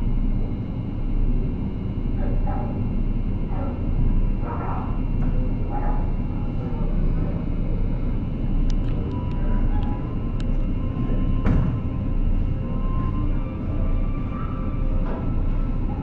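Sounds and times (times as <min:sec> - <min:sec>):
ship engines droning: 0:00.0 - 0:16.0
faint voices: 0:02.0 - 0:11.4.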